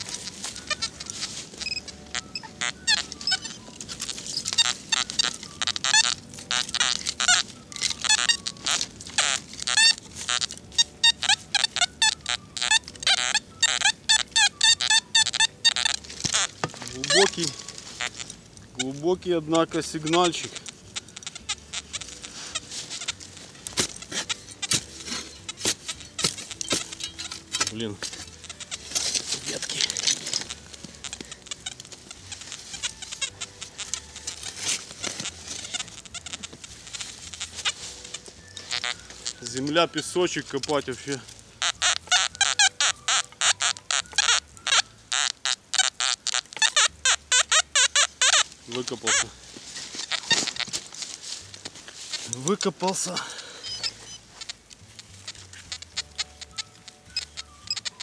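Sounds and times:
flock of birds calling: 0.0s - 58.0s
loose soil pattering: 0.0s - 58.0s
shovel digging into soil: 16.0s - 17.7s, 22.1s - 32.0s, 34.0s - 35.7s.

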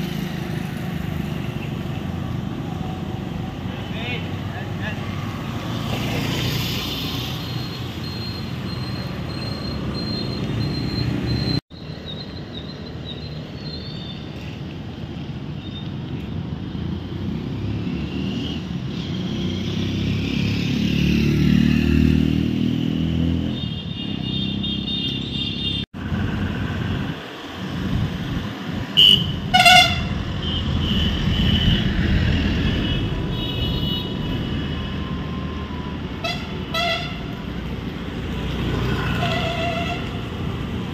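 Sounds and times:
traffic rumble: 0.0s - 40.9s
car horns tooting: 29.0s - 31.9s, 36.2s - 37.4s, 39.1s - 40.2s.

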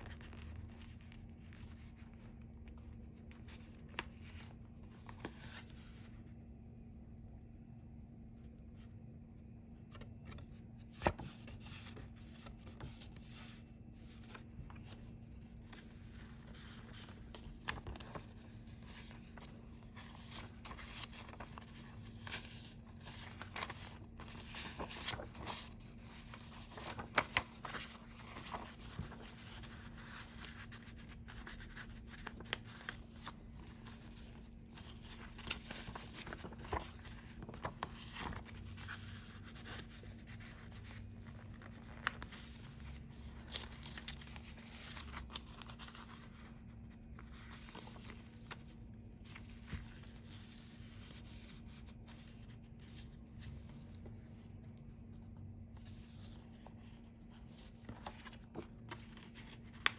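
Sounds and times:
faint steady hum: 0.0s - 59.9s
paper rustling and sliding: 9.9s - 54.6s, 55.7s - 59.9s.

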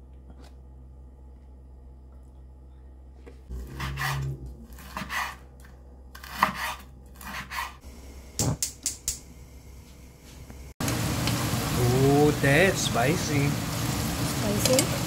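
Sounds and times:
knife chopping on wooden board: 6.2s - 7.7s
gas stove igniter clicks: 8.4s - 9.2s.

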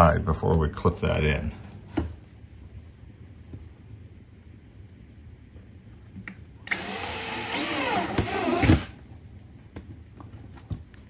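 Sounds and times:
cordless drill boring plastic: 6.7s - 8.9s.

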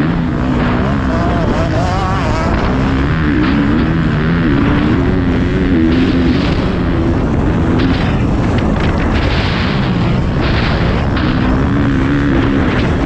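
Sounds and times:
motocross bike engine: 0.0s - 13.0s.

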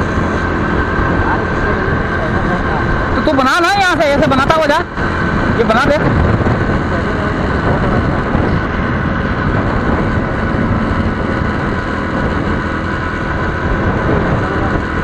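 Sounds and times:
motorcycle engine running: 0.0s - 15.0s
road noise: 0.0s - 15.0s
wind rush: 0.0s - 15.0s.

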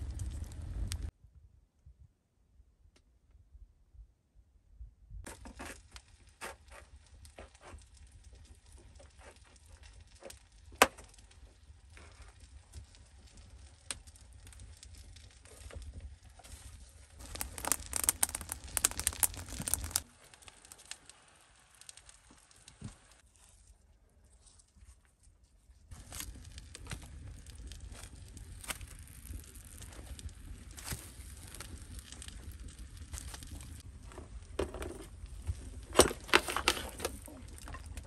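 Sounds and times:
wood embers crackling: 0.0s - 1.1s, 5.2s - 38.0s
rustling: 11.2s - 21.0s
sharp pops and snaps: 17.2s - 23.2s.

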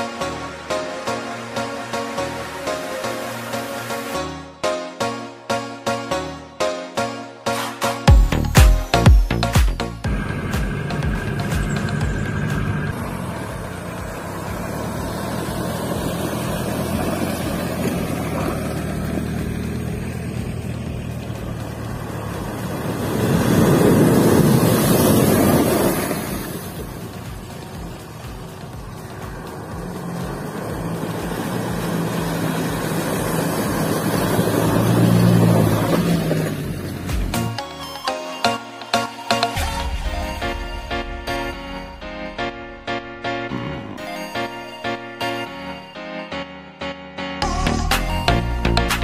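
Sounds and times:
truck engine running: 8.1s - 37.6s
water splashing around wheels: 10.1s - 37.6s
river rushing: 21.7s - 37.6s.

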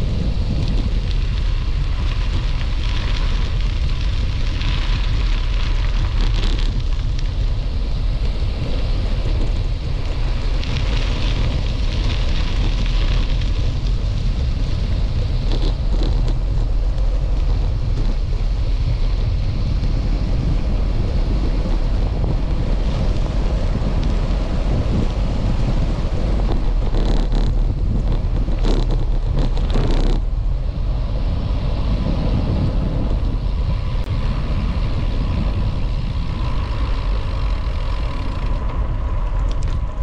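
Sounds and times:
wind buffeting microphone: 0.0s - 40.0s.

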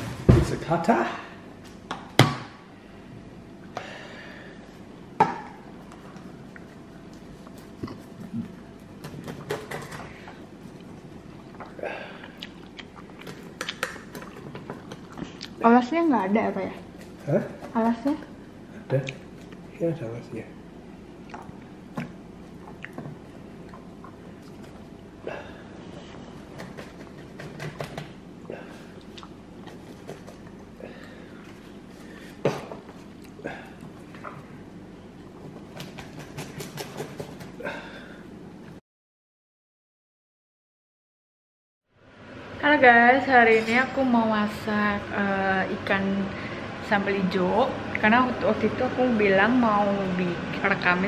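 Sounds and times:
pizza cutter crunching crust: 16.6s - 18.3s.

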